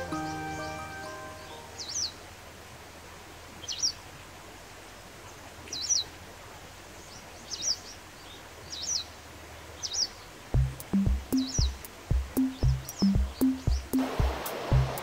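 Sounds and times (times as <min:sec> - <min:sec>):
wagtail chirping: 0:10.6 - 0:15.0.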